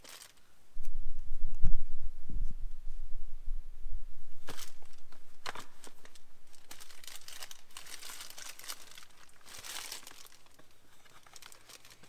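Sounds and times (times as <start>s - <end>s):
fabric bag rustling: 0.0s - 0.4s, 4.4s - 12.0s.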